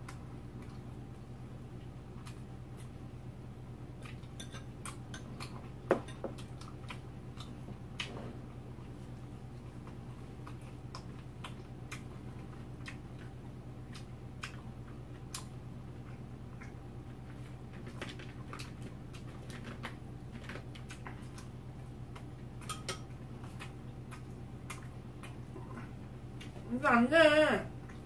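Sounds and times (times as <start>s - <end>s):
steady low hum: 0.0s - 28.0s
chopsticks clicking against bowls: 4.3s - 5.5s, 22.6s - 24.8s.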